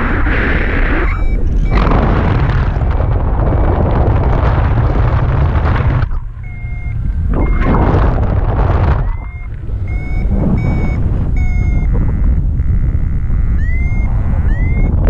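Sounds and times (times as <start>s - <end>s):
wind buffeting microphone: 0.0s - 15.0s
variometer high beeps: 1.0s - 2.0s, 6.1s - 15.0s.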